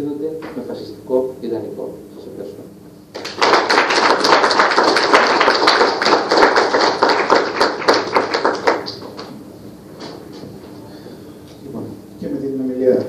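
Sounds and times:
audience applauding: 3.1s - 9.3s.

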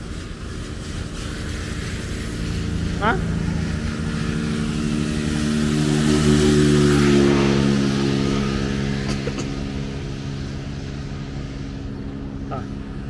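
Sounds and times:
vehicle engine humming: 0.0s - 13.0s
vehicle passing on wet road: 0.0s - 13.0s.

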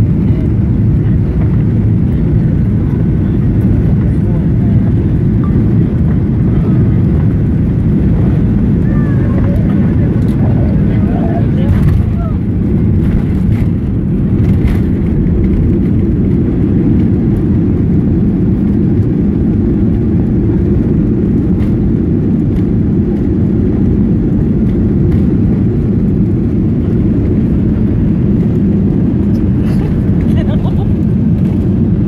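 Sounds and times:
aircraft engines rumbling: 0.0s - 32.0s
wheels rolling on runway: 0.5s - 32.0s.

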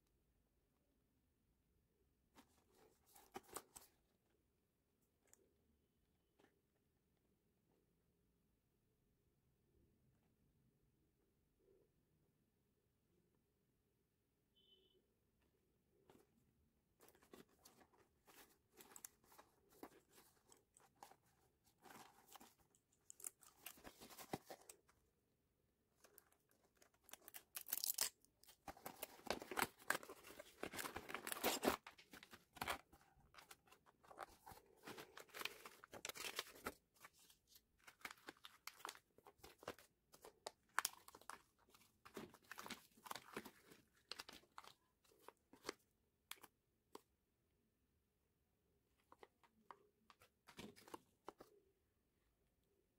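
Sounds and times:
packaging rustling and tearing: 26.0s - 45.7s.

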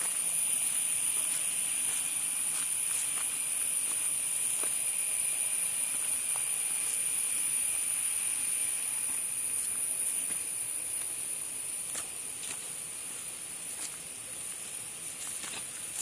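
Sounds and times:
insects droning: 0.0s - 16.0s
faint footstep clicks: 11.9s - 16.0s.

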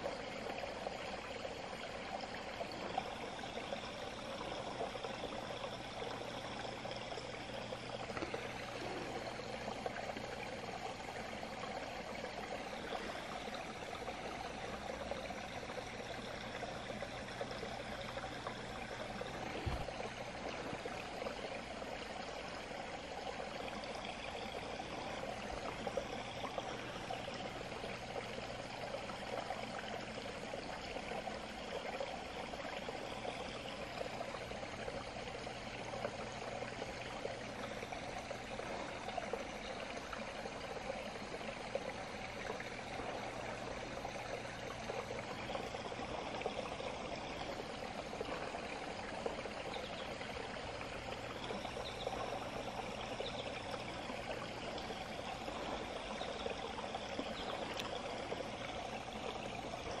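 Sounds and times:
small stream running: 0.0s - 60.0s.

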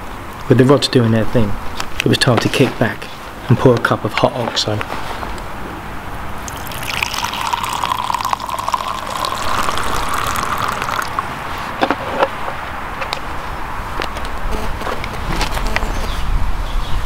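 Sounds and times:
liquid pouring into a mug: 6.4s - 11.3s
liquid dripping: 6.4s - 11.6s.

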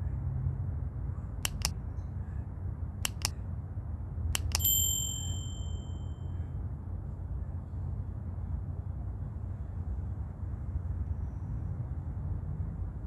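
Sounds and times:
mouse clicks: 1.4s - 1.8s, 3.0s - 3.4s, 4.4s - 4.7s
bright bell ding: 4.5s - 6.3s.

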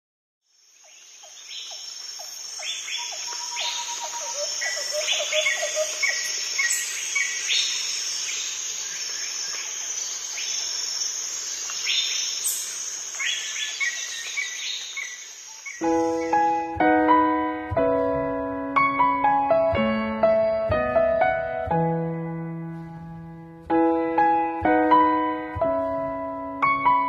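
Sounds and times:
insects trilling: 0.5s - 16.7s
birds chirping: 0.8s - 16.7s.

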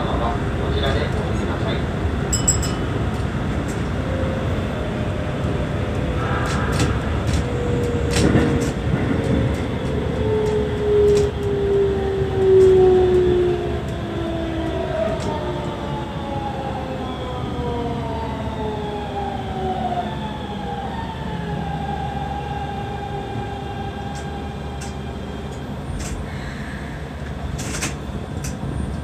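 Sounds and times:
train wheels rumbling: 0.0s - 17.7s.

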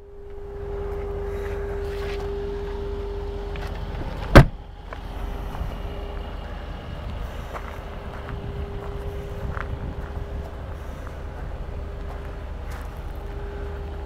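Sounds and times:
steady low hum: 0.0s - 14.0s
car door shutting: 1.8s - 5.1s.

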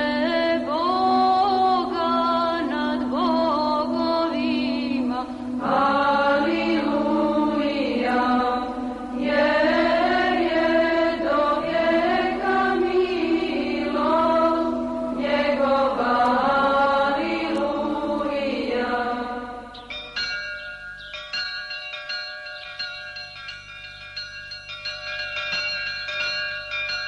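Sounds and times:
voices chanting: 4.0s - 20.0s.

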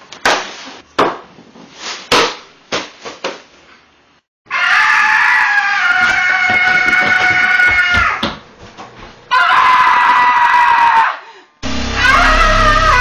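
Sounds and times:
sharp hits: 11.6s - 13.0s.

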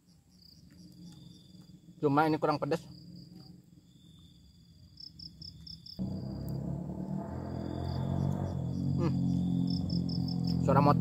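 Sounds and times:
motorcycle engine humming: 5.0s - 11.0s.

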